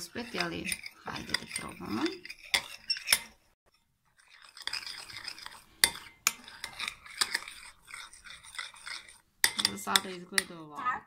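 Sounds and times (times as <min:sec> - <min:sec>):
spoon scraping in glass bowl: 0:00.0 - 0:10.6
spoon clinking against bowl: 0:04.3 - 0:10.6.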